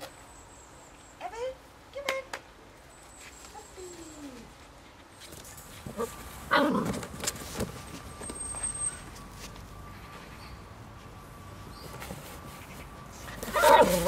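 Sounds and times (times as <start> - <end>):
puppies yelping and whining: 13.4 - 14.0.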